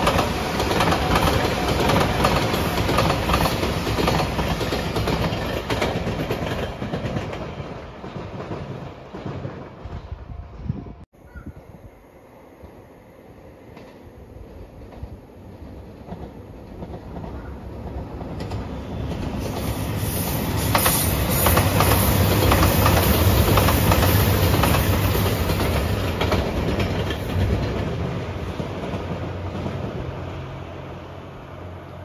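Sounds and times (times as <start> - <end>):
wheels clacking over rail joints: 0.0 - 9.8, 20.6 - 30.1
diesel train passing: 0.0 - 11.0, 11.6 - 32.0.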